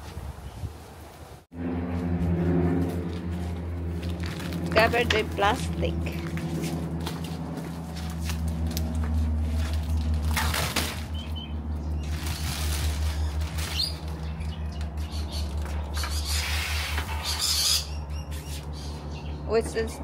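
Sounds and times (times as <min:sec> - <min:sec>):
steady low hum: 0:01.6 - 0:20.0
plastic wrap rustling and crinkling: 0:08.0 - 0:11.2, 0:12.0 - 0:14.4
bird chirping: 0:11.1 - 0:12.2.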